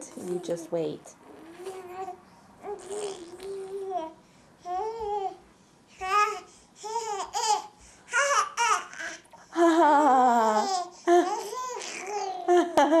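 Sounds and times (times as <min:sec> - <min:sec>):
baby babbling and laughing: 0:01.6 - 0:05.4, 0:06.0 - 0:09.2, 0:10.5 - 0:12.5.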